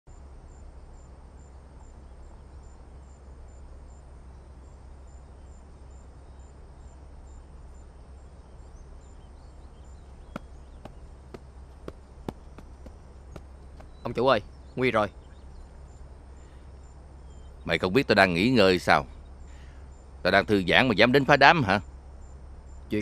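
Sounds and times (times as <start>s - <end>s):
insect chirping: 0.1s - 23.0s
steady low hum: 0.1s - 23.0s
sharp taps: 10.3s - 14.2s.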